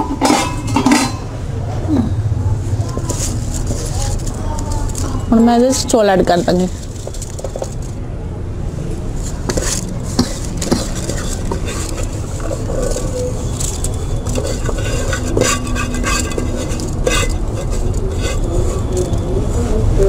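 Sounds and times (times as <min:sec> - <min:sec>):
stove flame rumble: 0:09.0 - 0:19.8.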